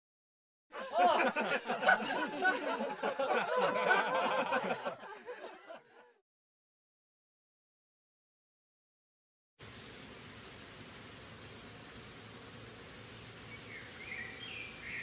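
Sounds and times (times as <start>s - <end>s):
people laughing: 0.7s - 6.2s.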